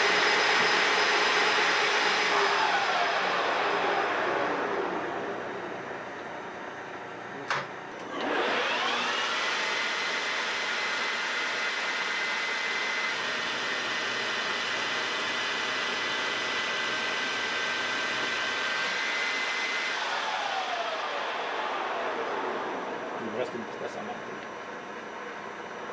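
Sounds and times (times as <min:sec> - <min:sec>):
metal lathe whine: 0:00.0 - 0:07.3, 0:08.0 - 0:25.9.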